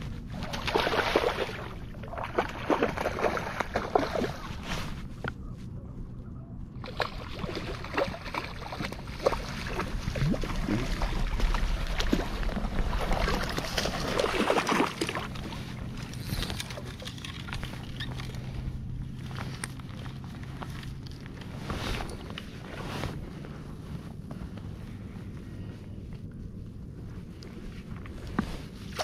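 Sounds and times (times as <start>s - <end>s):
water sloshing: 0.2s - 5.2s, 6.8s - 23.4s.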